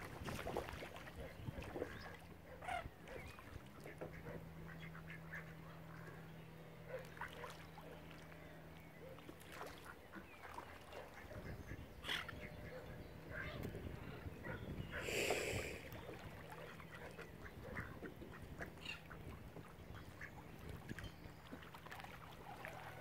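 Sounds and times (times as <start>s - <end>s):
ducks quacking: 1.2s - 6.2s, 9.7s - 13.7s, 14.4s - 20.5s.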